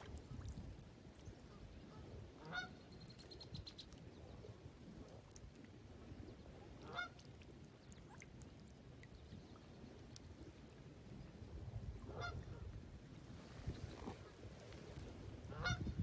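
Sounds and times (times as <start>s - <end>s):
waterfowl calls: 1.9s - 2.8s, 6.8s - 7.3s, 12.1s - 12.7s, 15.5s - 15.9s.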